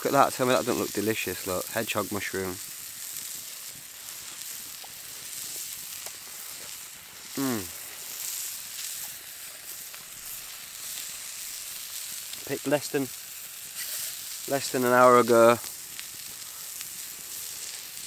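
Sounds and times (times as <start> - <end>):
food sizzling in a skillet: 0.0 - 18.0
man saying mmm: 7.3 - 7.8.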